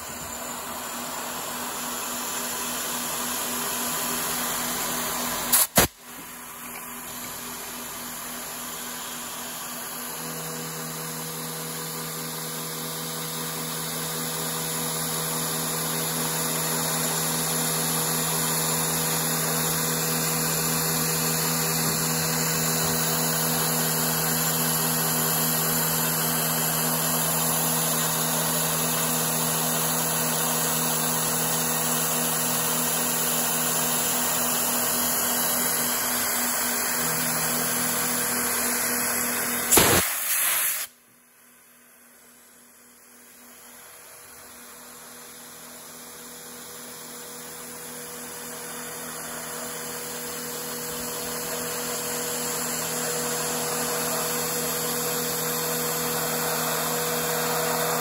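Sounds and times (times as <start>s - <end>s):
coolant spray hiss: 5.5s - 5.9s, 39.7s - 40.9s
milling spindle whine: 47.4s - 58.0s.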